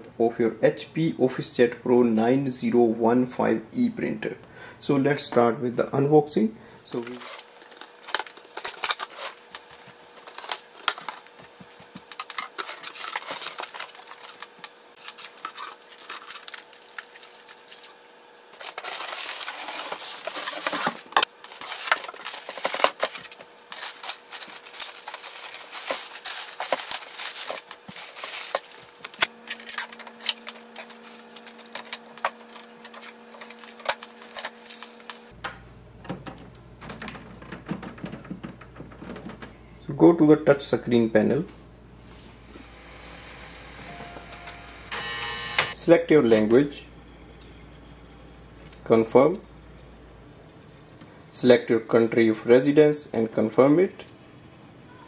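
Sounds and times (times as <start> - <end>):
faint steady hum: 0.0 - 55.0
foam and plastic wrap rustling: 6.8 - 35.4.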